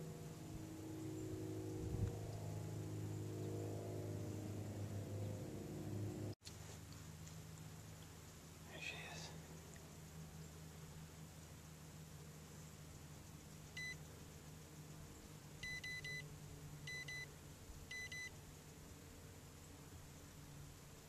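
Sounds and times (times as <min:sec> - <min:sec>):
faint low hum: 0:00.0 - 0:21.0
short high electronic beeps: 0:15.6 - 0:16.2, 0:17.9 - 0:18.3.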